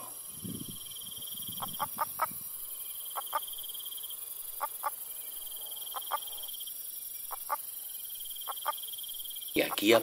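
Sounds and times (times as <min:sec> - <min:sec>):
toad clucking calls: 0:00.8 - 0:06.6, 0:07.2 - 0:07.7, 0:08.3 - 0:10.0.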